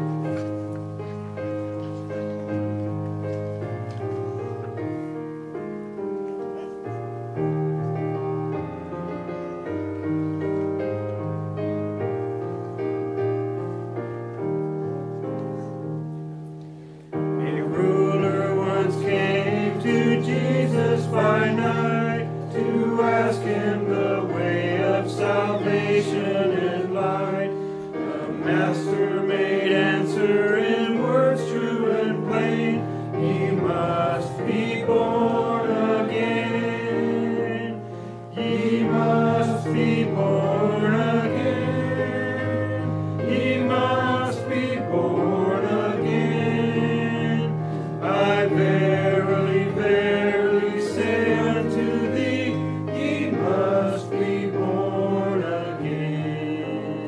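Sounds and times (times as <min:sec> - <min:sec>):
congregation singing a hymn: 0:00.0 - 0:57.0.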